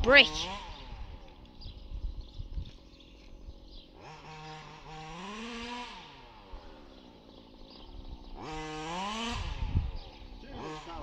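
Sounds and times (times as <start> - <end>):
rc car engine revving: 3.5 - 11.0.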